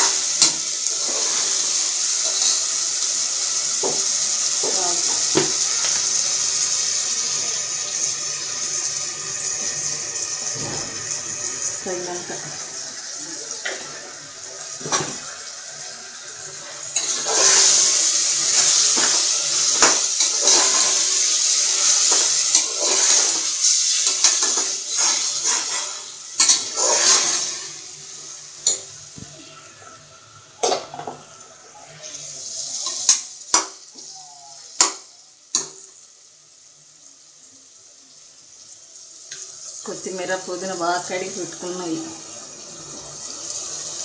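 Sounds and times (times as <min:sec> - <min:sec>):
spatula scraping in a pot: 0:00.0 - 0:02.8, 0:16.7 - 0:27.8
loud sizzling: 0:00.0 - 0:44.0.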